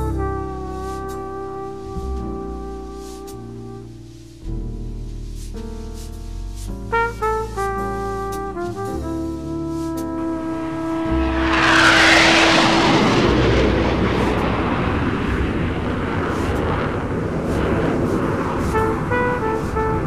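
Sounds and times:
brass jazz music: 0.0s - 20.0s
street rumble: 10.2s - 20.0s
vehicle passing: 10.8s - 16.6s.

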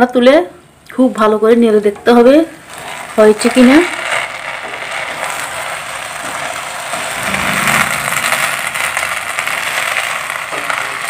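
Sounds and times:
rice sizzling in a pan: 2.2s - 11.0s.

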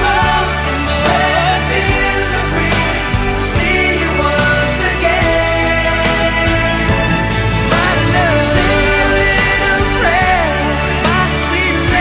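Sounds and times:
pop music: 0.0s - 12.0s.

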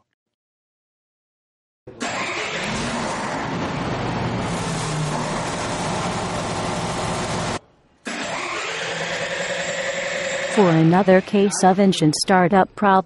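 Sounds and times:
engine starting and running: 1.9s - 11.6s.

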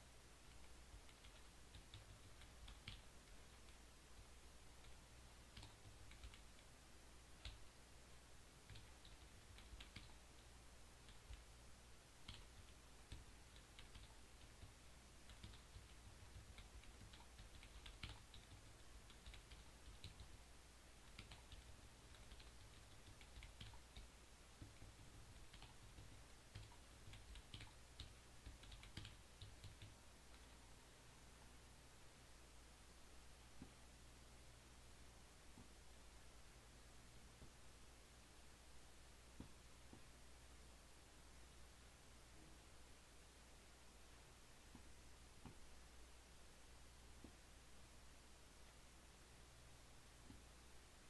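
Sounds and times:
low steady hum: 0.0s - 51.0s
computer keystrokes clicking: 0.5s - 3.8s, 4.8s - 6.7s, 8.7s - 11.4s, 12.2s - 14.7s, 15.3s - 20.4s, 21.1s - 30.5s.

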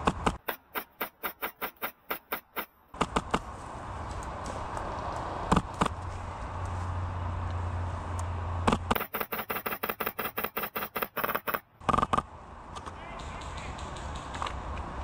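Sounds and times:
airsoft rifle shots: 0.2s - 3.5s, 8.7s - 12.2s.

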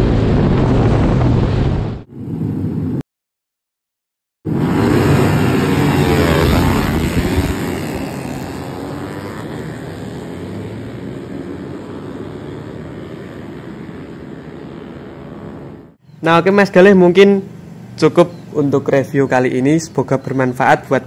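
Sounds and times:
small motorcycles revving: 4.5s - 16.0s.

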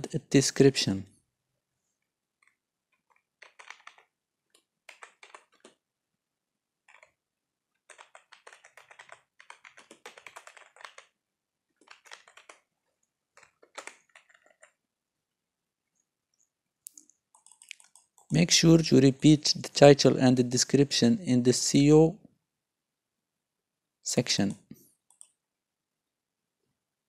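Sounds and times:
quiet computer keyboard typing: 2.0s - 5.9s, 6.8s - 14.8s, 16.9s - 18.4s, 25.0s - 25.4s.

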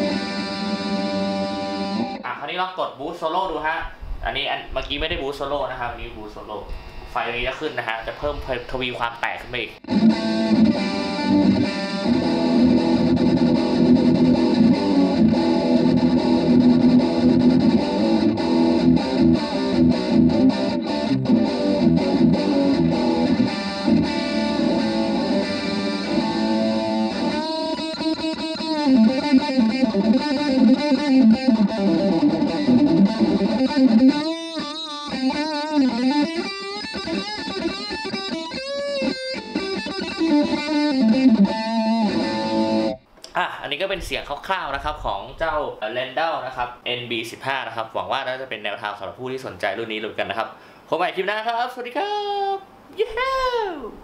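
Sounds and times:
distorted electric guitar: 0.0s - 2.3s, 9.8s - 43.1s.

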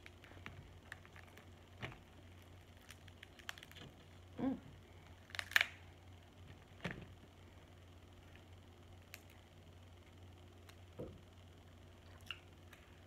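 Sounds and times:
crab shells cracking: 0.0s - 4.0s, 5.2s - 5.9s.

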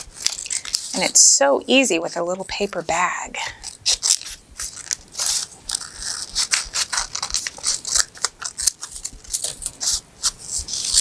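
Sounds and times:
scissors snipping paper: 0.0s - 1.3s, 3.6s - 11.0s.

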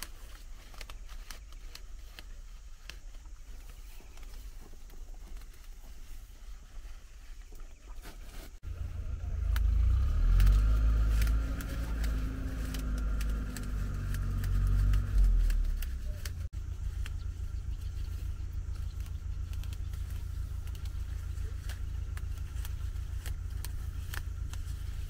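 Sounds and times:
engine running: 8.3s - 25.0s.

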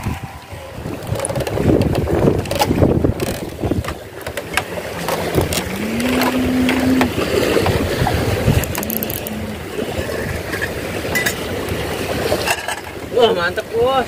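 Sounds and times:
wind buffeting microphone: 0.0s - 12.4s
choppy sea: 0.0s - 14.0s
hum rising in pitch: 4.8s - 10.2s.

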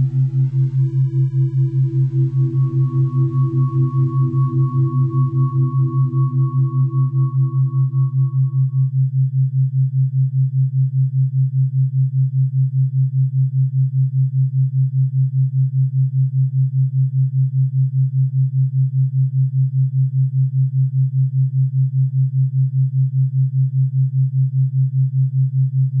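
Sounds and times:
pulsing low electronic tone: 0.0s - 9.1s.

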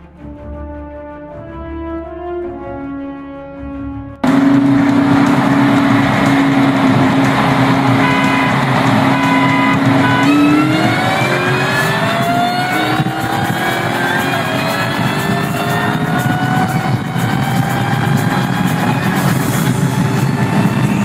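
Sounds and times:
car engine at full throttle: 4.2s - 21.0s
wind and road noise: 4.2s - 21.0s.

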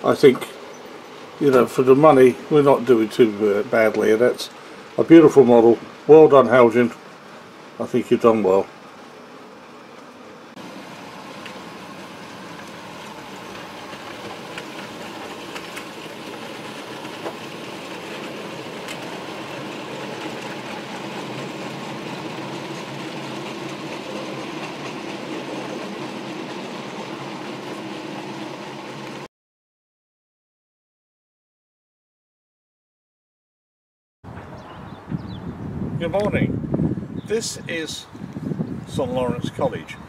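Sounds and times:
model train motor hum: 10.0s - 29.3s.

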